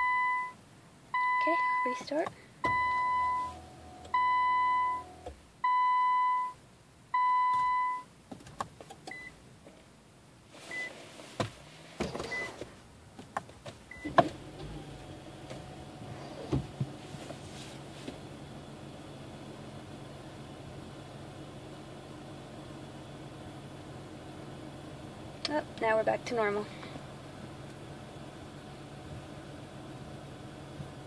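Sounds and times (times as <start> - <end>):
car warning chime beeps: 0.0 - 8.1, 9.1 - 9.4, 10.7 - 10.9, 12.3 - 12.6, 13.9 - 14.2
low running hum: 11.4 - 31.0.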